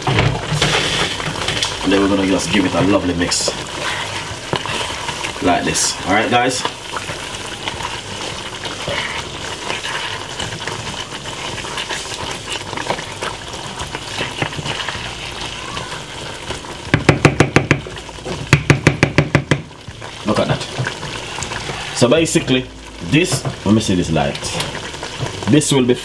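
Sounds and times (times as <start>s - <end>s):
wooden spoon scraping a pan: 0.0s - 16.7s, 20.0s - 25.6s
onions sizzling and bubbling: 0.0s - 26.0s
wooden spoon tapping a saucepan: 16.9s - 19.7s.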